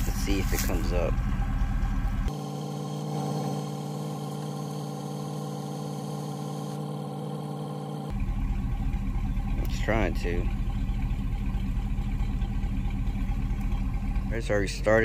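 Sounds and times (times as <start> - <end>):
rough low rumble: 0.0 - 2.3, 8.1 - 15.0
car engine idling: 0.0 - 15.0.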